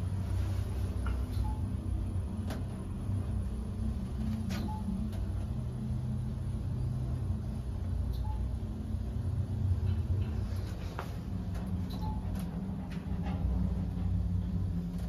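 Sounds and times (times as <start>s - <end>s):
elevator hum and rumble: 0.0s - 15.0s
short faint beeps: 8.1s - 8.5s.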